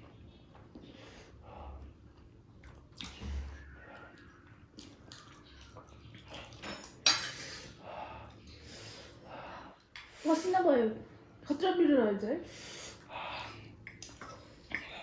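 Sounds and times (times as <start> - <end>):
sharp cutlery clatter: 6.6 - 7.4
cutlery clinking on dishes: 6.6 - 7.5.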